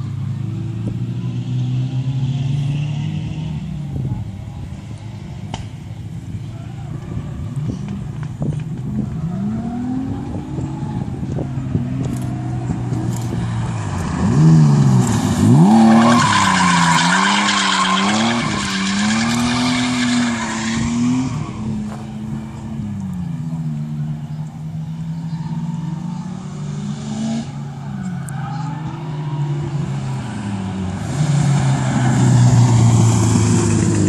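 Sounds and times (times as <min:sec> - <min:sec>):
car engine revving: 0:08.8 - 0:34.0
tyres squealing: 0:15.6 - 0:21.6.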